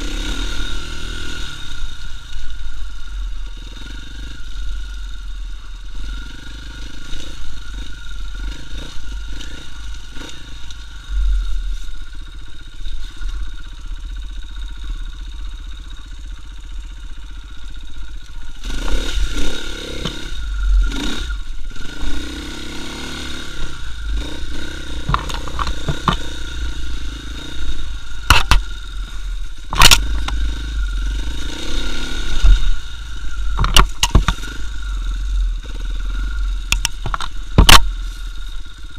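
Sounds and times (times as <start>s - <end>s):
motorcycle engine running: 0.0s - 38.9s
knocks of bike over rough ground: 24.9s - 26.6s, 28.2s - 28.9s, 33.4s - 34.6s, 36.7s - 38.3s.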